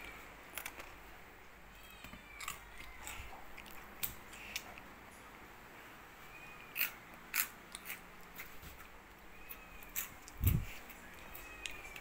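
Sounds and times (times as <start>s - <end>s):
sharp clicks and crunches: 0.0s - 1.0s.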